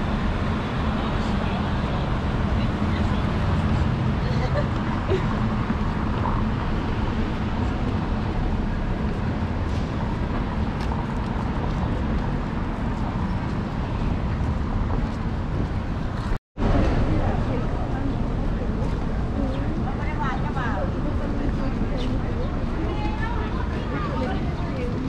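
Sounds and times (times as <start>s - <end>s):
outdoor bustle: 0.0s - 25.0s
traffic rumble: 0.0s - 25.0s.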